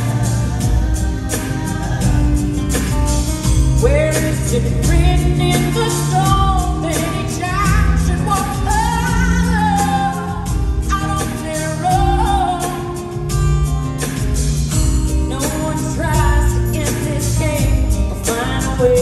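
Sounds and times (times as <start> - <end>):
live pop-rock band: 0.0 - 19.0.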